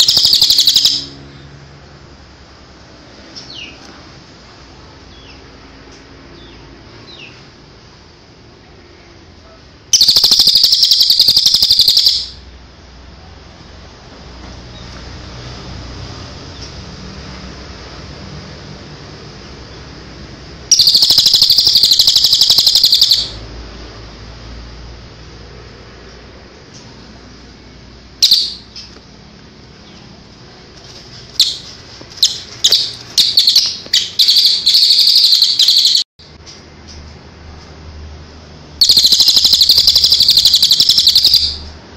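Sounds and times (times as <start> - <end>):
bird rattling call: 0.0 - 1.2, 10.0 - 12.4, 20.7 - 23.4, 28.2 - 28.9, 31.3 - 36.0, 38.8 - 41.6.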